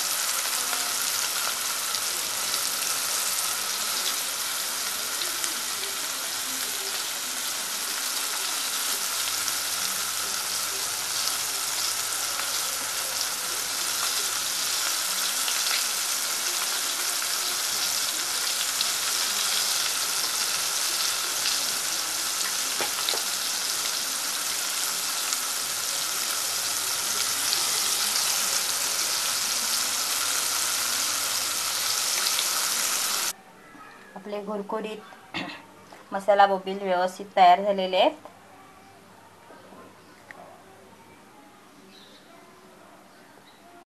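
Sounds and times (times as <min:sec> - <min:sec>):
fish sizzling in hot oil: 0:00.0 - 0:33.3.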